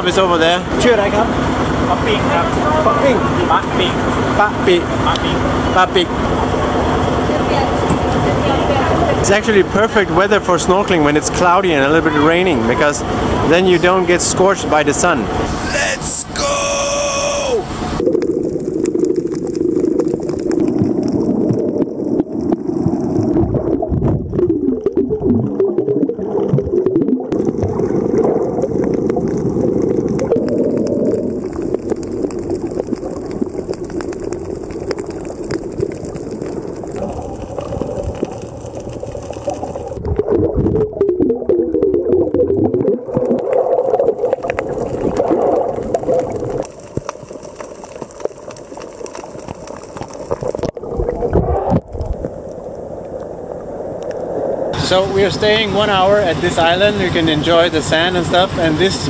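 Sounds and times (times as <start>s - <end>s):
low underwater rumble: 17.7s - 58.0s.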